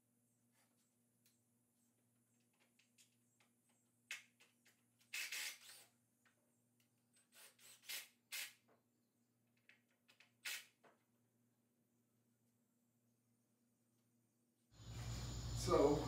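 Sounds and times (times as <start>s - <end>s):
faint low hum: 14.8s - 16.0s.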